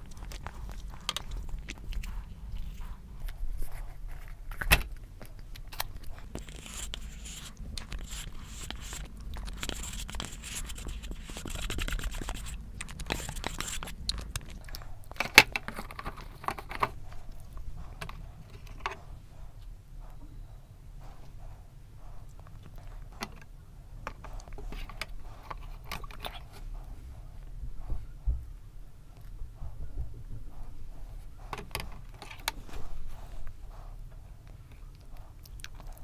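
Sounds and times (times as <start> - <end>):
scraping inside a paper tub: 6.2 - 14.0.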